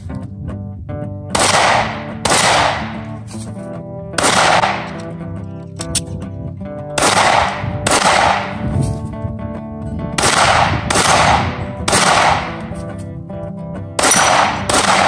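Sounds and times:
background music: 0.0 - 15.0
pistol shots: 1.3 - 3.4, 4.1 - 5.2, 6.9 - 8.8, 10.2 - 12.8, 14.0 - 15.0.

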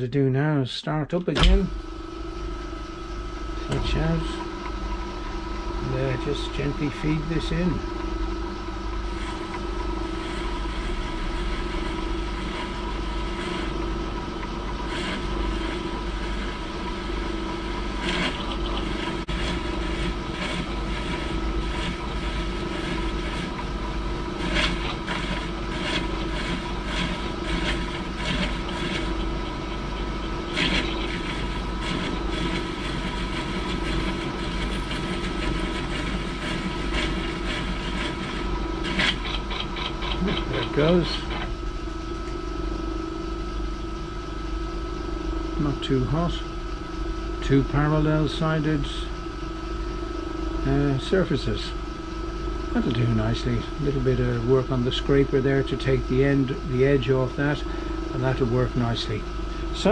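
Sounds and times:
metal lathe humming: 1.3 - 59.9
lathe tool scraping metal: 3.4 - 42.4.

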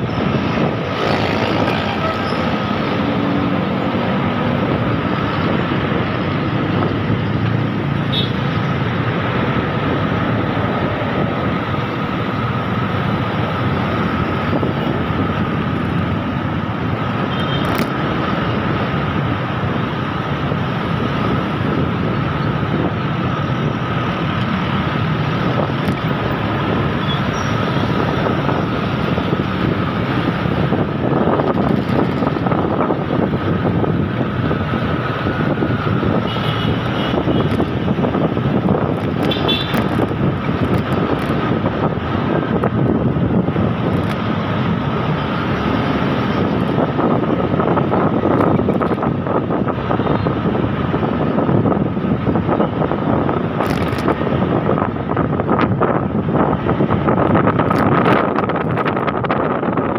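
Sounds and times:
motorcycle engine and road noise: 0.0 - 59.9
wind rush: 0.0 - 59.9.

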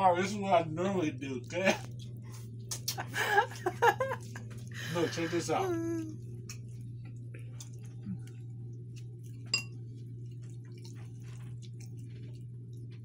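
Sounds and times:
low hum: 0.0 - 13.0
spoon clinking on bowl: 9.5 - 9.8.

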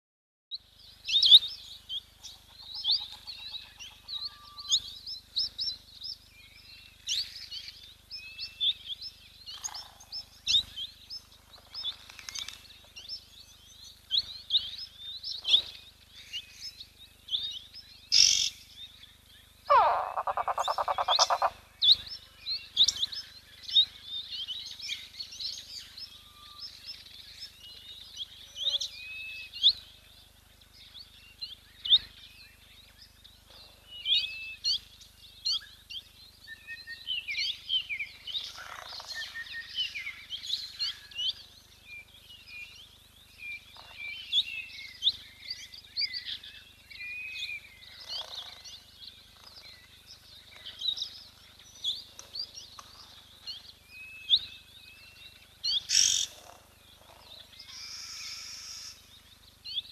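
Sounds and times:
small birds chirping: 0.5 - 59.9
harsh rattling bird call: 19.6 - 22.0, 38.4 - 39.8, 47.8 - 49.9, 55.8 - 59.1.

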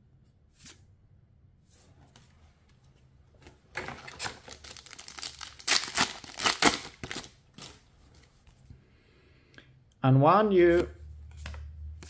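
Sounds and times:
foil wrapper tearing and crinkling: 4.1 - 7.8.

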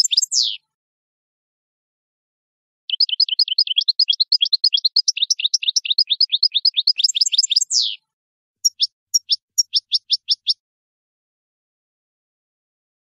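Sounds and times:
goldfinch singing: 0.0 - 0.6, 2.9 - 8.0, 8.6 - 10.6.

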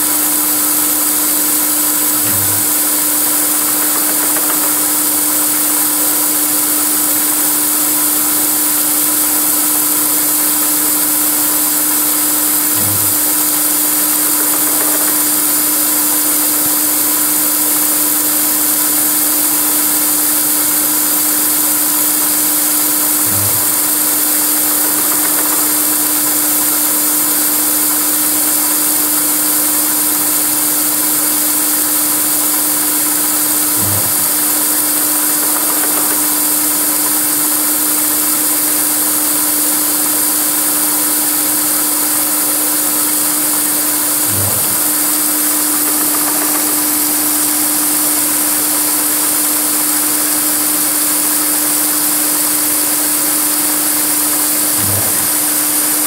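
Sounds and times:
mill spindle cutting metal: 0.0 - 56.0
brief low axis drive sound: 1.8 - 6.1, 11.6 - 17.1, 21.9 - 38.5, 43.2 - 48.3, 54.6 - 56.0.

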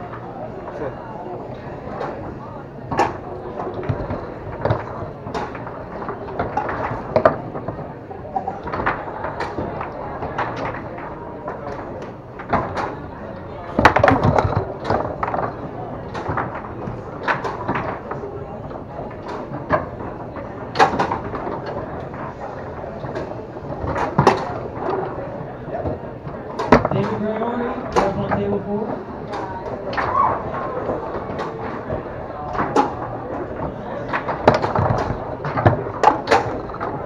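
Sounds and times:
foosball rods clacking: 1.8 - 37.0
foosball ball knocking: 13.7 - 22.3, 25.8 - 28.6, 29.2 - 37.0.

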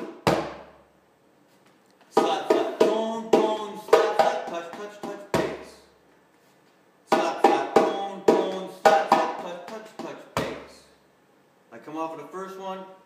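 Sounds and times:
djembe hand drumming: 2.2 - 5.6, 7.1 - 10.6.

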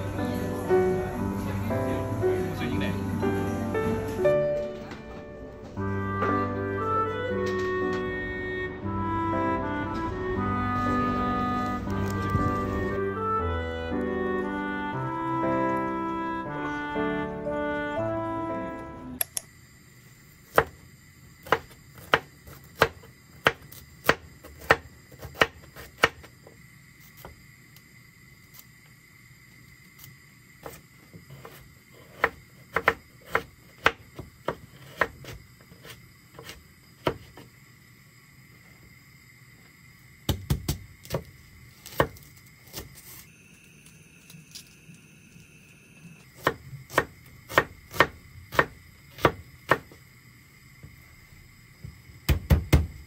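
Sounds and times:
knife chopping on wooden board: 21.4 - 26.3, 31.4 - 37.4, 46.4 - 49.9, 52.3 - 53.0.

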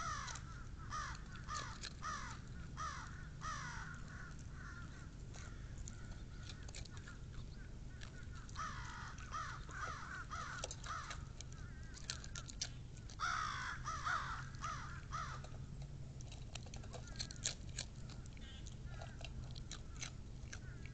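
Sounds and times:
crows cawing: 0.0 - 12.4, 13.1 - 15.5, 18.4 - 19.3, 20.6 - 20.9.

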